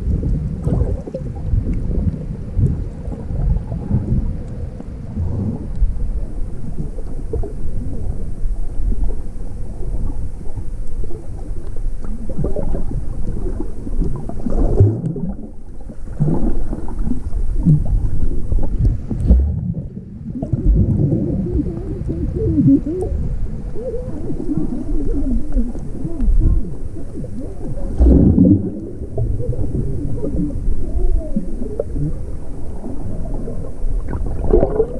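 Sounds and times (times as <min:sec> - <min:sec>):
underwater rumble and gurgling: 0:00.0 - 0:34.9
low warbling sounds: 0:12.3 - 0:34.9.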